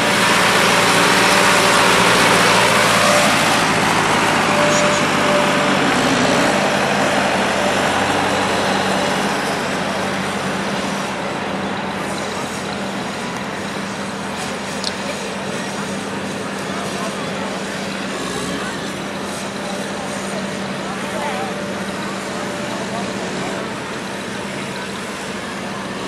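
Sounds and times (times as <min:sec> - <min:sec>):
tractor driving past: 0:00.0 - 0:26.0
tractor engines idling: 0:00.0 - 0:26.0.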